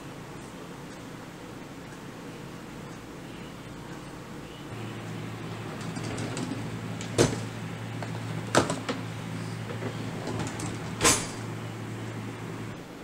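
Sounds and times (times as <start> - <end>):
steady low hum: 0.0 - 13.0
drawer shut thump: 10.4 - 11.4.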